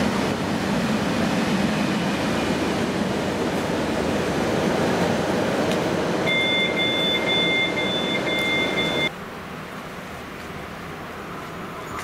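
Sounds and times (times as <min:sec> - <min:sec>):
high two-note electronic beep: 0:06.3 - 0:09.1.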